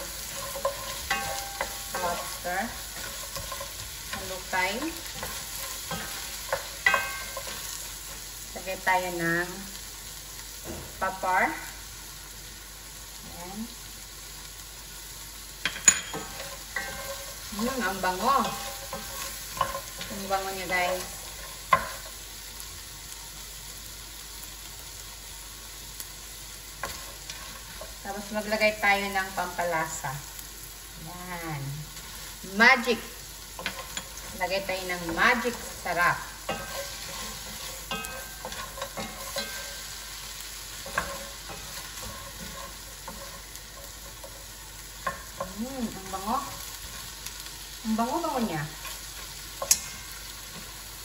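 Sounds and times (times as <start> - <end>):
spatula and shells clicking on pan: 0.0 - 8.2, 15.6 - 22.6, 32.0 - 47.7, 48.7 - 51.0
food sizzling in hot oil: 0.0 - 51.0.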